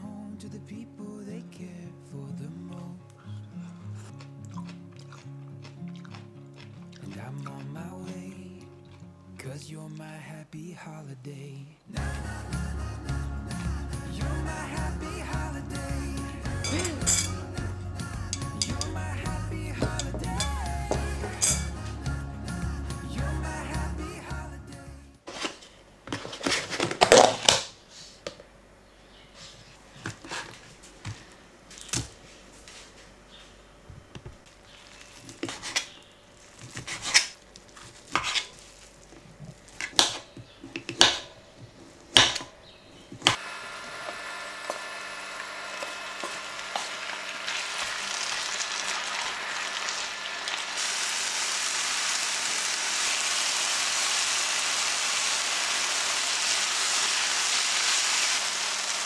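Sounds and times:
food sizzling in a pan: 16.5 - 22.0, 43.3 - 59.0.

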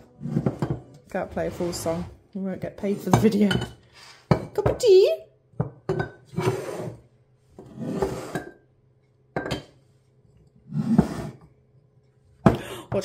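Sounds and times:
lids clinking against ceramic jars: 3.0 - 4.9, 9.4 - 9.8.

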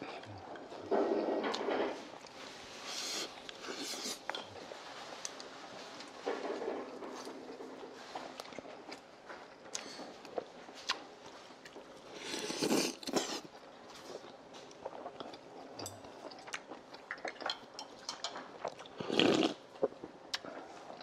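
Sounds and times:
chewing: 8.1 - 21.0.

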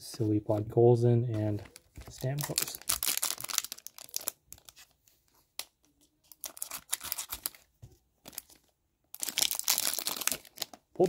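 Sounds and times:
foil wrapper crinkling and tearing: 1.6 - 5.0, 6.3 - 7.7, 8.3 - 10.8.

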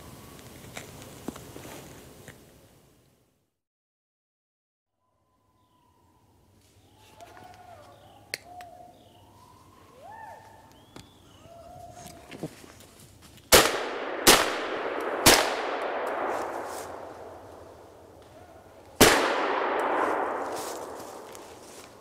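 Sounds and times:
gunshots with echoing roll: 13.5 - 17.8, 19.0 - 21.6.

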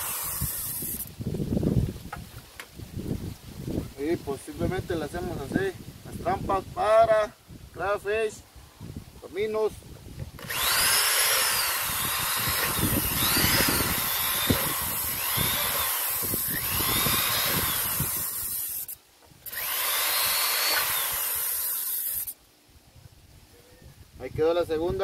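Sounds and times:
electric drill boring plastic: 0.0 - 1.1, 10.4 - 22.4.

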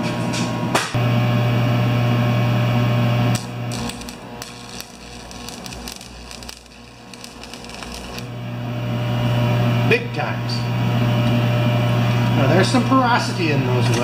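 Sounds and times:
loud steady hum: 0.3 - 14.0
welding arc crackling: 2.2 - 9.6.

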